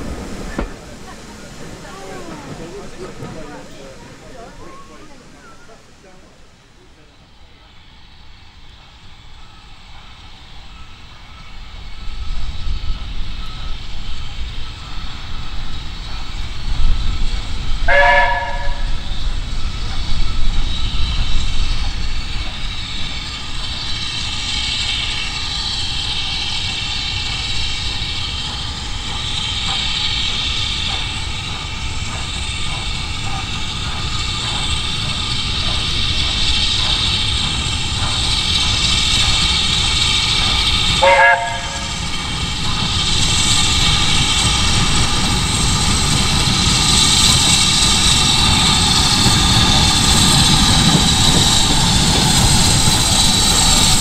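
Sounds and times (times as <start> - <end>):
steam locomotive hissing: 0.0 - 54.0
train whistle blasts: 17.8 - 19.1, 40.8 - 42.2.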